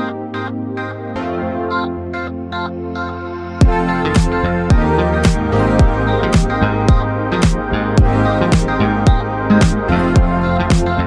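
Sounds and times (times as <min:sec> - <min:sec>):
held synth chords: 0:00.0 - 0:11.0
kick drum beat: 0:03.6 - 0:11.0.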